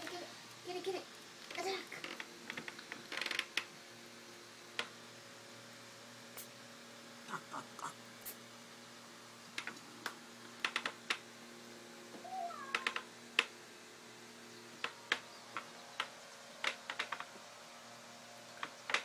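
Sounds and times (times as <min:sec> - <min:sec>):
kitten mew: 0:12.2 - 0:12.9.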